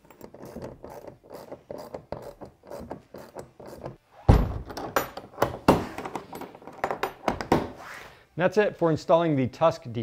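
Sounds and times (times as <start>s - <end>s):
loud thud: 4.3s - 4.7s.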